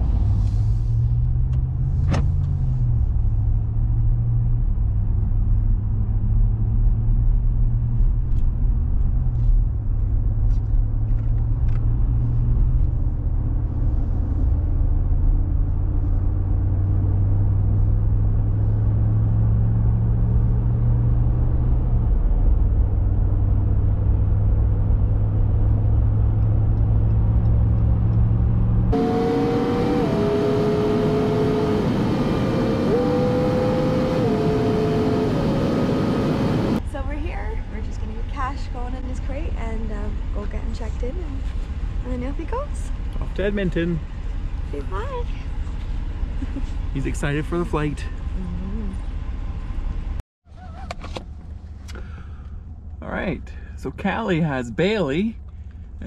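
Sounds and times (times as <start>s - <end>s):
car engine and tyre drone: 0.0s - 37.0s, 37.7s - 56.0s
higher whine: 25.7s - 36.8s.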